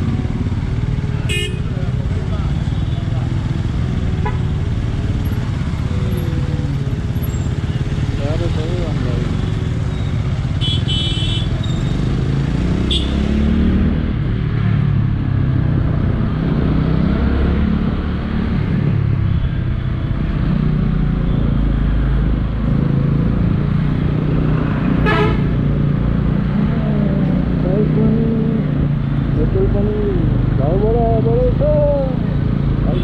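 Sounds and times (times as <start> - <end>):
motorcycle engine revving: 0.0 - 19.2
road noise: 0.0 - 33.0.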